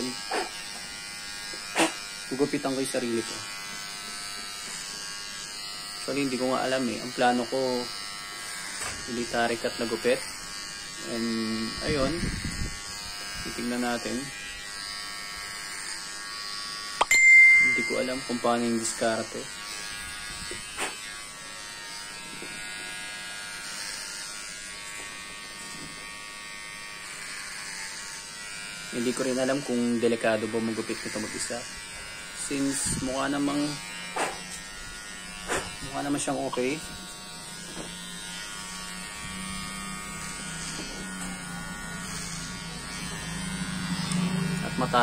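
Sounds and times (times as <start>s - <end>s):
hair clipper buzzing: 0.0s - 45.0s.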